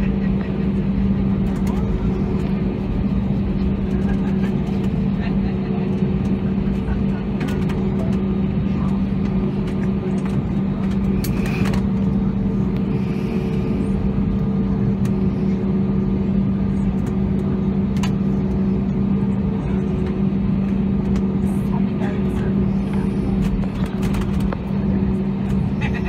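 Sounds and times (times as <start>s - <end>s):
jet engines rumbling in cabin: 0.0s - 26.0s.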